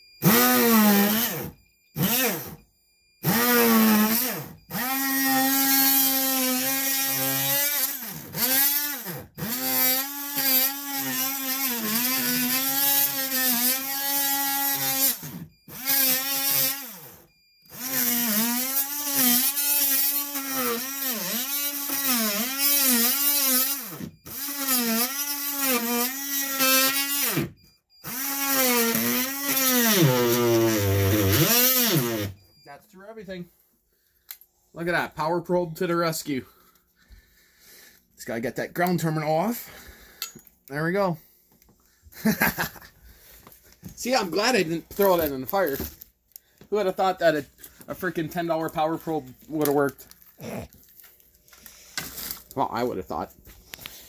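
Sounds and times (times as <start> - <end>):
multi-tool buzzing whine: 0.0 - 32.7.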